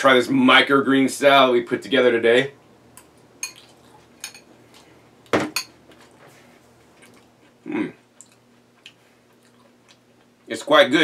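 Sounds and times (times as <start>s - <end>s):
fork clinking against glass bowl: 3.4s - 3.6s, 4.2s - 4.5s.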